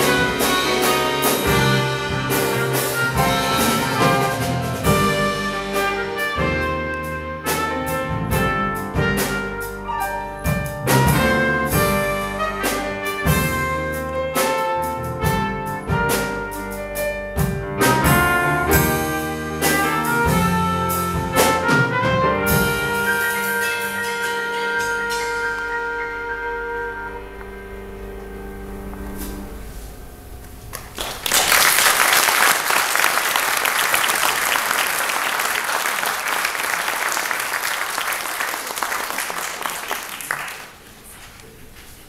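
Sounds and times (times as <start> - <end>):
trumpet playing: 0.0 - 17.0, 17.8 - 29.6
drum kit with cymbals: 0.0 - 26.9.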